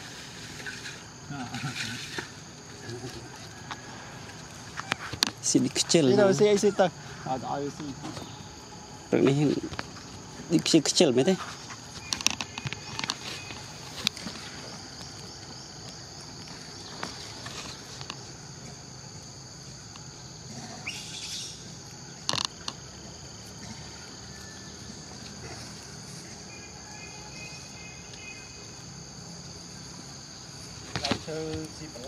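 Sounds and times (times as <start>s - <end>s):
high-pitched insect chorus drone: 0.0s - 32.0s.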